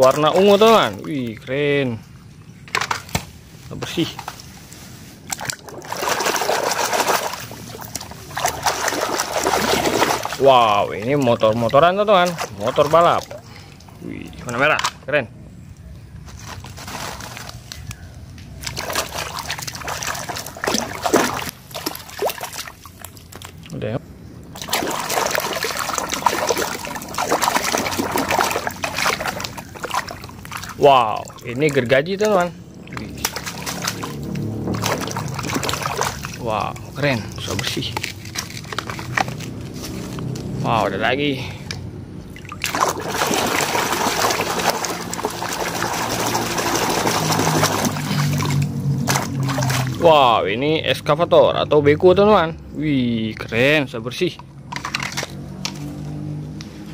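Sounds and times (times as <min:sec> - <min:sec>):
water splashing and sloshing: 0:00.0 - 0:15.2, 0:16.2 - 0:51.2, 0:53.3 - 0:56.9
water gurgles: 0:05.2 - 0:14.7, 0:18.5 - 0:23.9, 0:24.5 - 0:39.4, 0:42.2 - 0:50.5.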